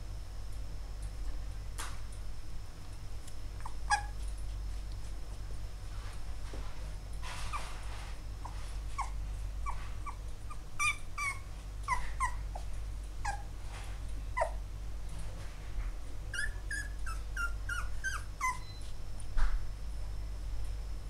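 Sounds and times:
puppy whimpering: 3.6s - 4.2s, 7.4s - 13.5s, 14.4s - 14.6s, 16.3s - 18.9s.

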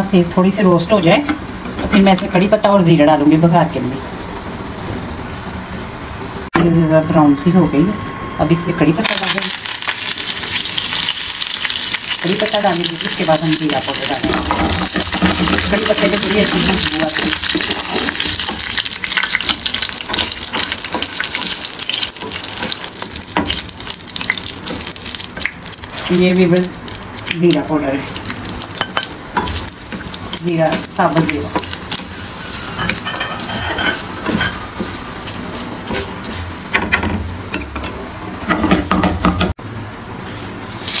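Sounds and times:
leaves and chillies sizzling in oil: 9.0s - 36.0s, 40.4s - 41.0s
spatula stirring in oil: 9.4s - 35.0s.

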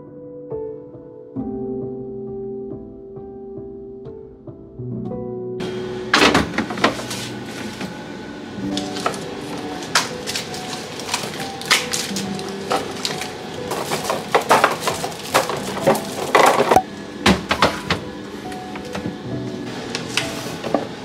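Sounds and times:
soft background music: 0.0s - 21.0s
plastic wrappers crinkling: 8.6s - 16.8s.

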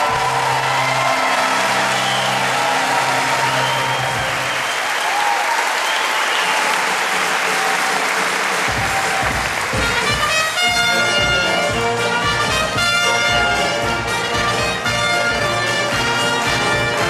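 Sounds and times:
audience applauding: 0.0s - 17.0s
low drum beats: 8.7s - 17.0s.

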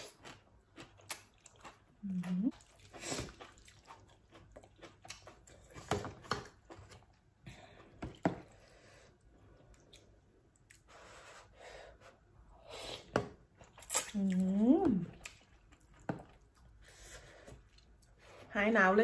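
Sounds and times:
chewing and lip smacks: 0.0s - 5.8s, 9.6s - 10.9s, 15.1s - 16.8s.

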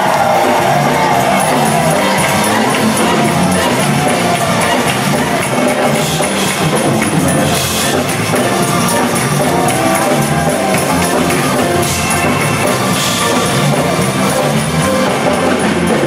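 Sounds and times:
choir singing gospel song: 0.0s - 6.5s
drums and percussion: 0.0s - 16.0s.

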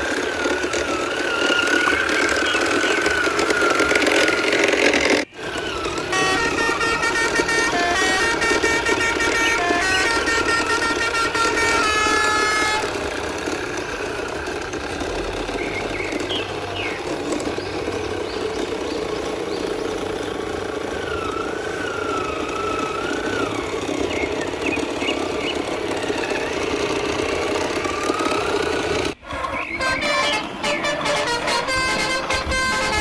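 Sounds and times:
engine-like hum: 0.0s - 33.0s
horn tooting notes: 5.5s - 13.8s, 29.2s - 33.0s.

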